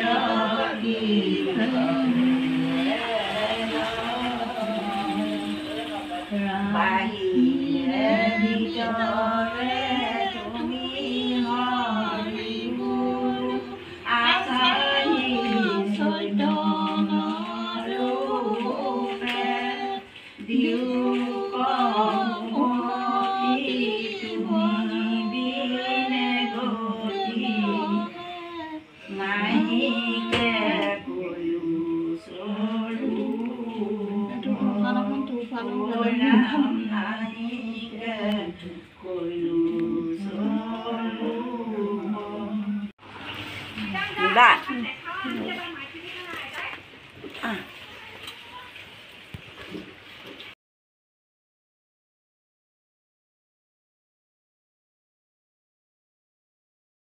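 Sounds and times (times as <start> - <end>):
women singing a hymn: 0.0 - 43.0.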